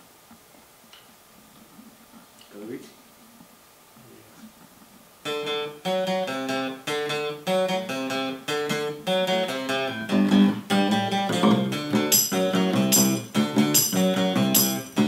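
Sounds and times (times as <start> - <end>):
acoustic guitars strumming chords: 5.2 - 15.0.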